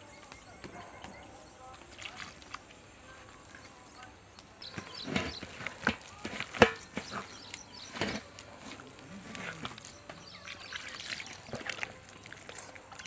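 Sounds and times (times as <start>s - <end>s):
hand squishing wet paste: 4.6s - 13.0s.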